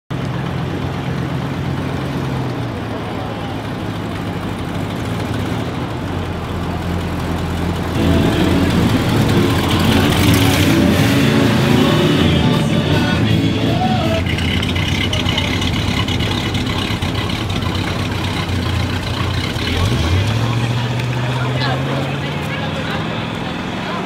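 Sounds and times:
car engine rumbling: 0.1s - 24.0s
car driving past: 7.8s - 24.0s.

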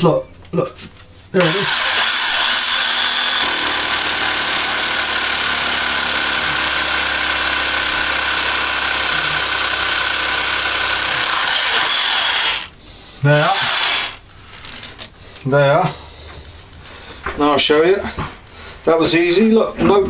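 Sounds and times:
power drill boring into ceiling: 1.4s - 14.2s.

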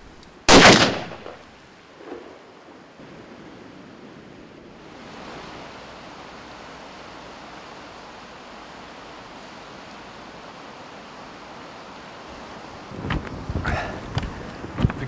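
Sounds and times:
river rapids rushing: 4.8s - 14.8s.

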